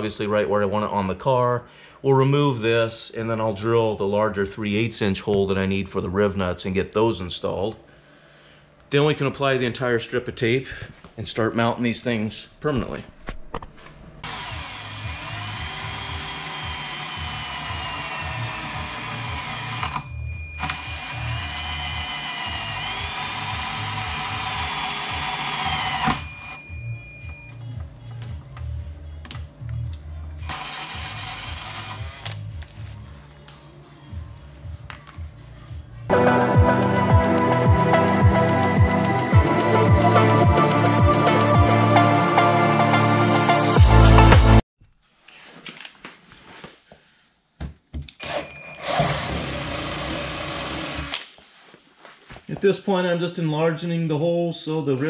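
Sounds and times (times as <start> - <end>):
cordless drill whining: 14.2 - 27.5, 30.4 - 32.4, 48.2 - 51.3
electronic music: 36.1 - 44.6.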